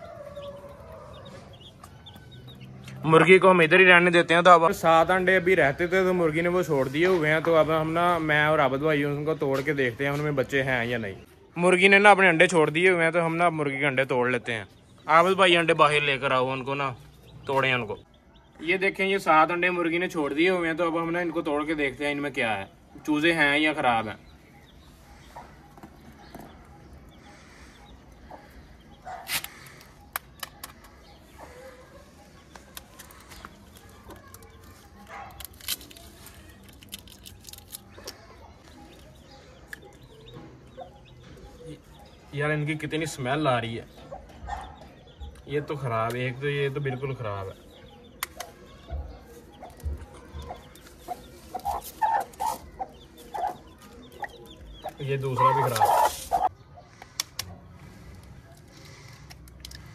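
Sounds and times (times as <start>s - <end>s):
hen clucking: 0.0s - 3.1s, 47.8s - 57.1s.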